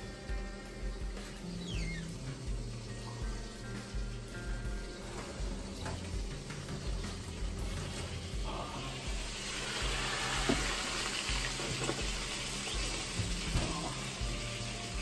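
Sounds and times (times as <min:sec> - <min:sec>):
oven door shutting: 0:09.9 - 0:12.2.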